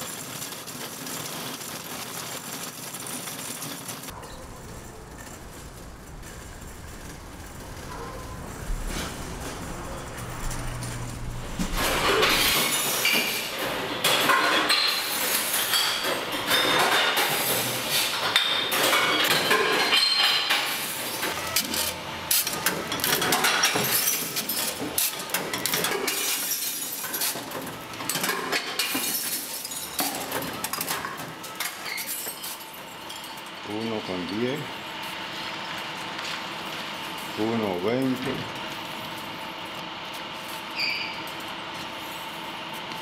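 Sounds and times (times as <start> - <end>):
low machine hum: 4.1 - 14.1
glass bottles clinking: 18.3 - 20.7.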